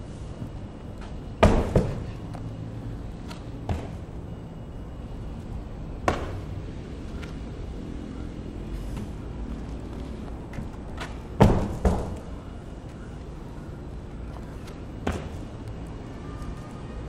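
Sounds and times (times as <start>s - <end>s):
person jumping on tire: 0.9s - 4.3s, 5.4s - 7.5s, 8.7s - 13.4s, 14.2s - 15.7s
heavy tire slamming onto concrete: 1.4s - 2.2s, 11.4s - 12.3s.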